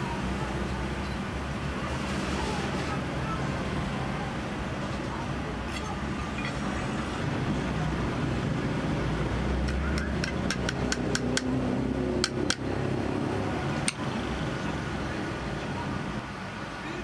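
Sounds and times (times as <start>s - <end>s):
low traffic hum: 0.0s - 17.0s
sharp metallic taps: 9.6s - 11.6s, 12.2s - 12.7s.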